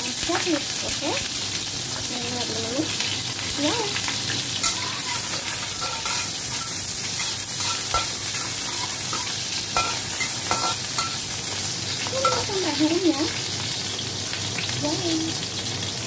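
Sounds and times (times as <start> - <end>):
food sizzling in hot oil: 0.0 - 16.0
metal spatula scraping pan: 4.6 - 11.3.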